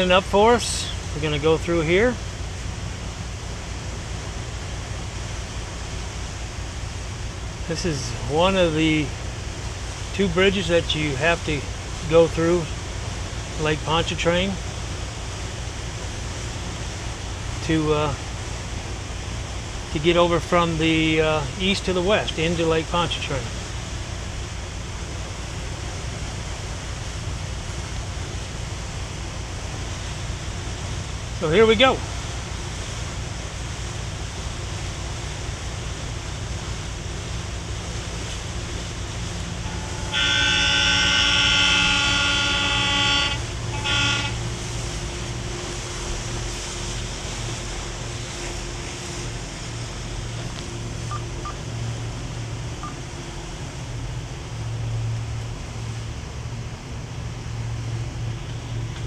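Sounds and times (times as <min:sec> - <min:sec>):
boat engines droning: 0:00.0 - 0:59.0
wind and water rushing: 0:00.0 - 0:59.0
horn blasts: 0:39.6 - 0:45.4.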